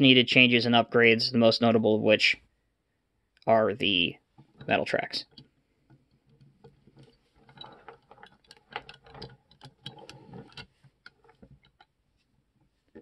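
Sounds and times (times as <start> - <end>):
toy metal tracks clicking: 7.0 - 11.4.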